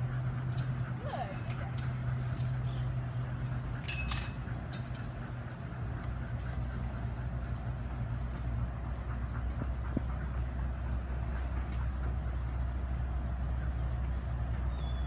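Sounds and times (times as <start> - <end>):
low mechanical hum: 0.0 - 15.0
metallic clinks: 3.8 - 5.2.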